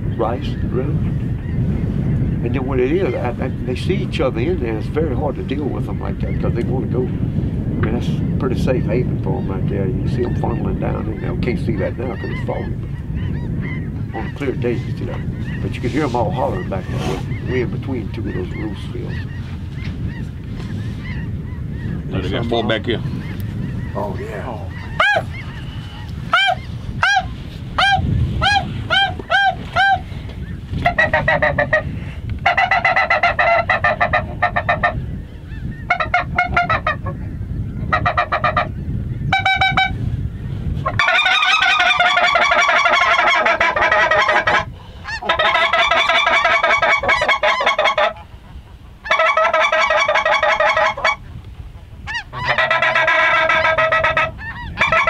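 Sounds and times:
geese honking in flight: 10.1s - 40.0s, 40.8s - 55.0s.

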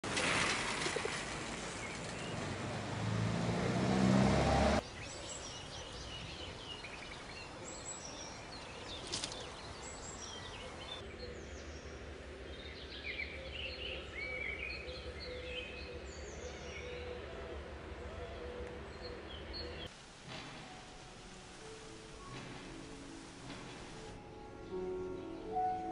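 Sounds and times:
vehicle passing: 0.1s - 4.8s
small birds chirping: 4.8s - 17.0s.

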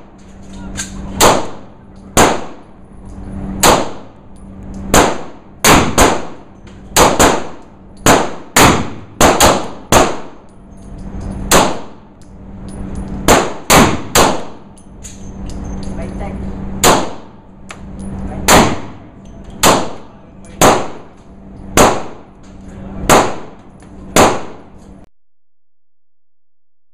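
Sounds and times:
steady low hum: 0.0s - 25.1s
pistol shots echoing indoors: 0.8s - 2.6s, 3.6s - 4.1s, 4.8s - 10.4s, 11.4s - 12.0s, 13.2s - 14.8s, 16.8s - 17.3s, 18.4s - 22.3s, 23.0s - 24.9s.

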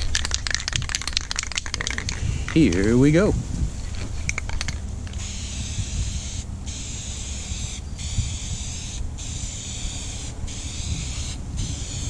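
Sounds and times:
steady low rumble: 0.0s - 12.0s
aerosol spray can hissing: 5.2s - 12.0s.

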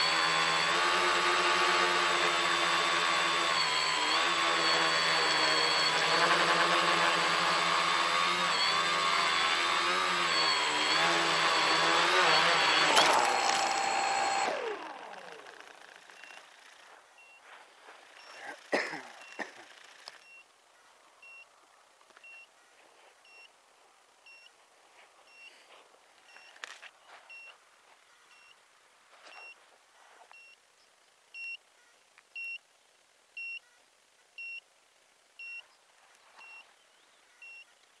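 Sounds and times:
rustling: 14.4s - 21.1s, 22.0s - 30.5s
electronic beeper beeping: 37.4s - 37.7s.

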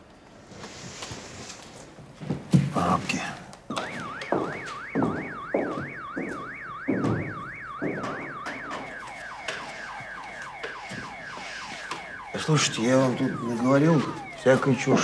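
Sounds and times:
car alarm siren: 3.7s - 15.0s
low thuds: 3.8s - 9.1s.

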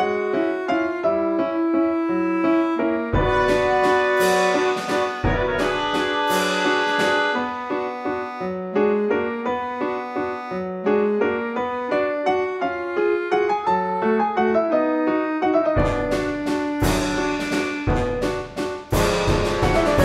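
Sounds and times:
light keyboard melody: 0.0s - 20.0s
deep hits: 3.1s - 7.7s, 15.8s - 20.0s.

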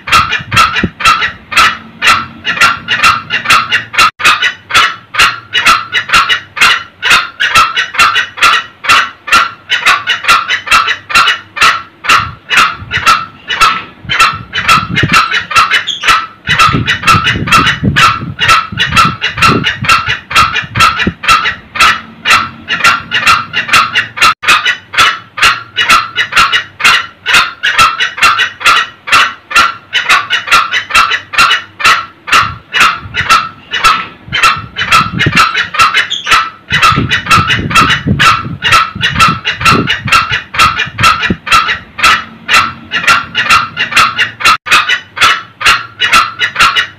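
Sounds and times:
junglefowl cackling: 0.0s - 46.9s.

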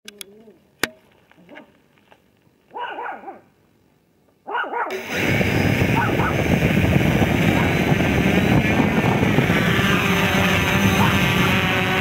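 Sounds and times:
dog barking: 2.7s - 3.5s, 4.4s - 4.9s, 6.0s - 6.4s
model aircraft rotors whirring: 4.9s - 12.0s.

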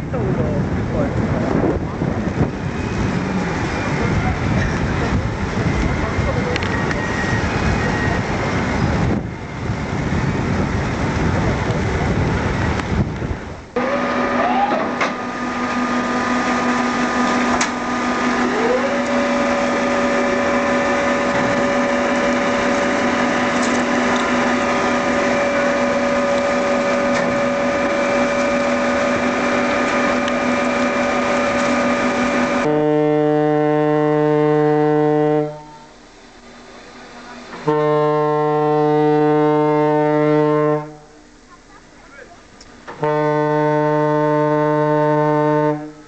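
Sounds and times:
winch machinery rumble: 0.0s - 46.0s
machine whine: 2.4s - 12.2s, 13.7s - 32.8s.

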